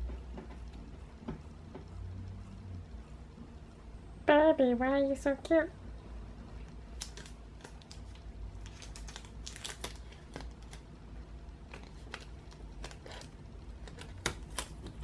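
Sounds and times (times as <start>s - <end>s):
low steady hum: 0.0s - 15.0s
cat pawing crumpled tape: 7.0s - 10.9s, 11.6s - 15.0s.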